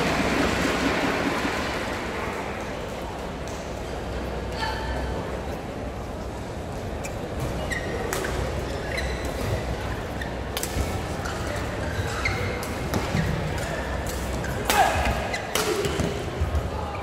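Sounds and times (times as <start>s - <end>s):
sneakers squeaking on court: 7.0s - 13.4s
rackets hitting shuttlecock: 12.2s - 16.6s.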